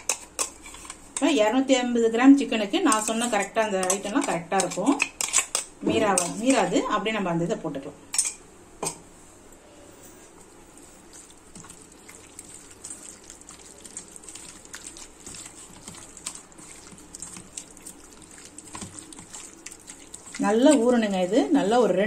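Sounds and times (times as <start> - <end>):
hands squelching meat in paste: 11.1 - 21.3.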